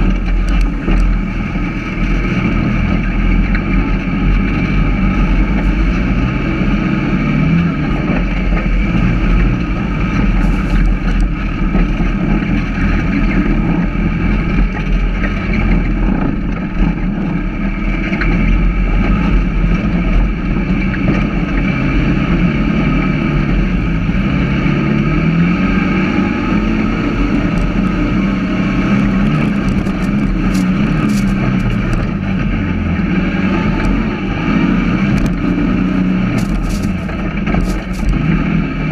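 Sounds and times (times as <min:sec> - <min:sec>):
dune buggy engine running: 0:00.0 - 0:38.9.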